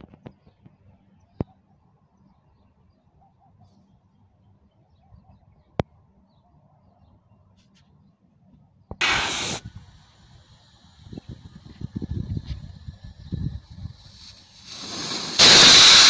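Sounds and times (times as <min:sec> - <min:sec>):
faint bird chirps: 0:00.2 - 0:08.9
gas hissing blast: 0:09.0 - 0:16.0.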